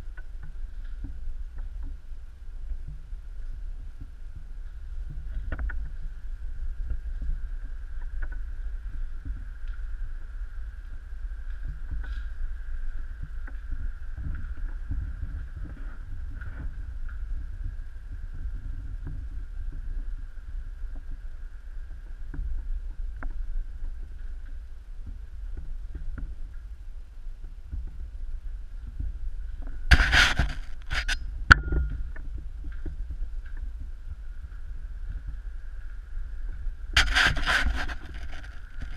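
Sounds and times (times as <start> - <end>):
low rumble: 0.0 - 38.9
faint high whine: 29.8 - 32.4
camera handling noise: 29.9 - 31.2, 37.0 - 38.9
debris crunching underfoot: 29.9 - 31.2, 37.0 - 38.9
loud crunching scrape: 29.9 - 31.2, 37.0 - 38.9.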